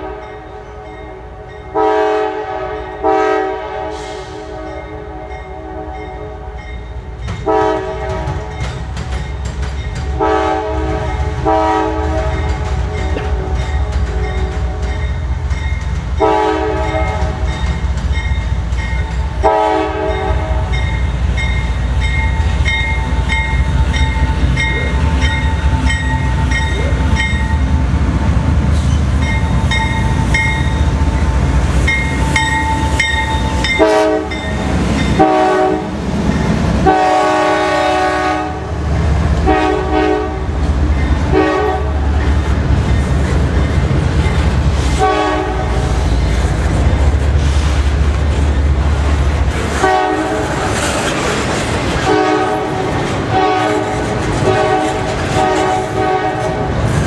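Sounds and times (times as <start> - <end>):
train horn blasts: 0.0 - 6.7, 7.4 - 8.7, 10.1 - 15.1, 16.2 - 17.6, 19.3 - 20.9, 32.2 - 36.0, 36.8 - 38.8, 39.4 - 42.2, 45.0 - 46.0, 49.8 - 50.7, 52.0 - 56.8
rail cars clattering: 0.0 - 57.0
locomotive engine rumble: 8.0 - 57.0.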